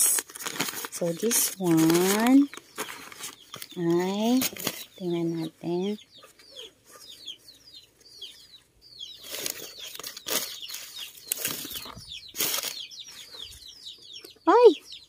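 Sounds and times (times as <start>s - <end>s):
paper crinkling and rustling: 0.0s - 5.1s, 9.2s - 13.3s
small birds chirping: 0.0s - 15.0s.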